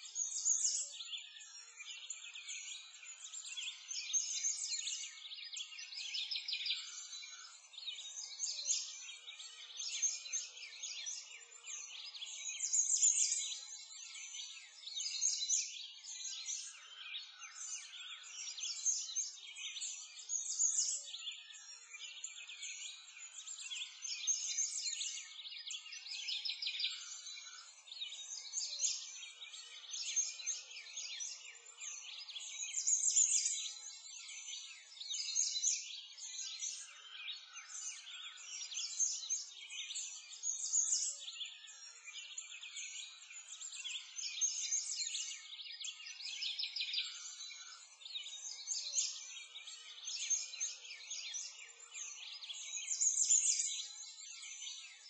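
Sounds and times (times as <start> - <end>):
songbirds chirping and twittering: 0.0 - 55.0.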